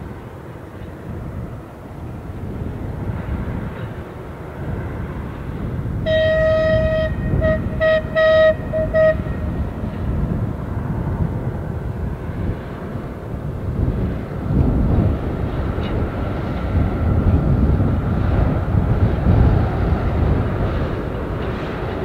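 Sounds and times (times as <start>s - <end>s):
diesel locomotive engines rumbling: 0.0s - 22.0s
locomotive horn blasts: 6.0s - 9.9s.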